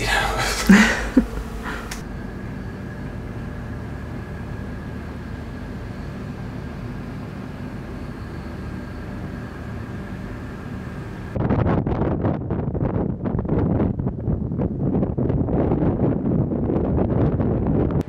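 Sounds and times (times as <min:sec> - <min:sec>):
faint high whine: 0:00.0 - 0:11.4
ship machinery drone: 0:00.0 - 0:11.6
wind buffeting microphone: 0:02.8 - 0:18.0.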